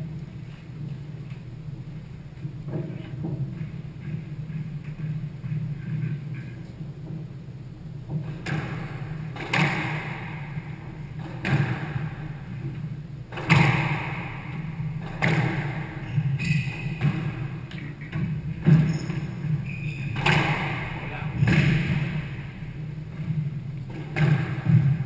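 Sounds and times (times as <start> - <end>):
squash ball hits echoing: 8.1 - 25.0.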